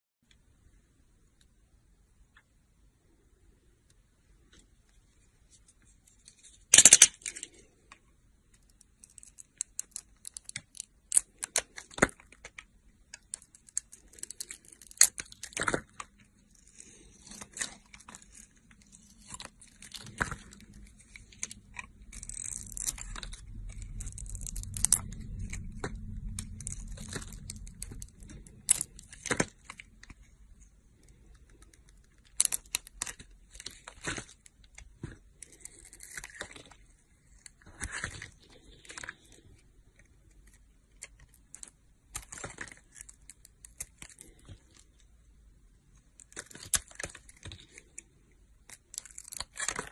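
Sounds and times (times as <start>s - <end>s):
low rumble: 20.3s - 30.9s.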